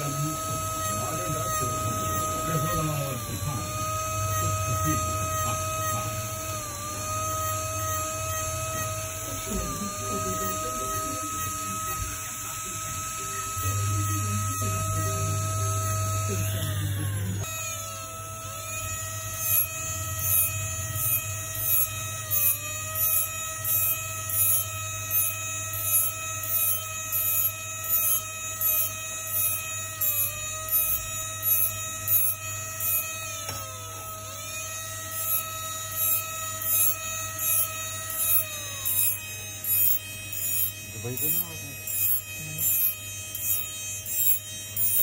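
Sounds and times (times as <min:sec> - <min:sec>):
hissing scrape of cutting bit: 0:00.0 - 0:45.0
rotary handpiece whining: 0:00.0 - 0:45.0.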